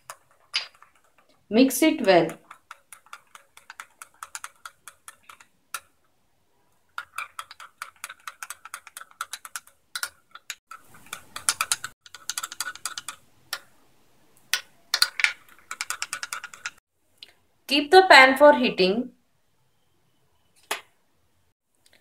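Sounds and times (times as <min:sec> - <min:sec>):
spoon beating egg in glass bowl: 0:00.0 - 0:06.0, 0:07.0 - 0:13.2.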